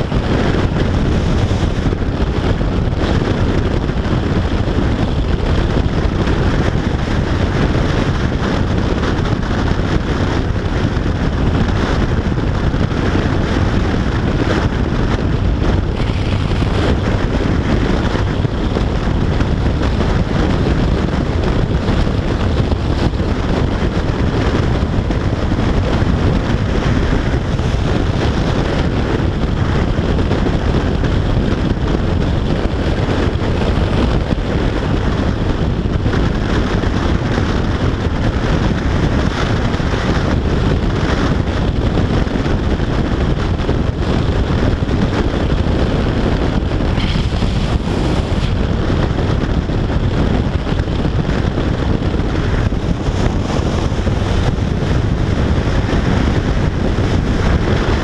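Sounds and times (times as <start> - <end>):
motorcycle engine: 0.0 - 41.8, 42.6 - 58.0
wind noise on microphone: 0.0 - 58.0
tyre noise: 45.6 - 50.0.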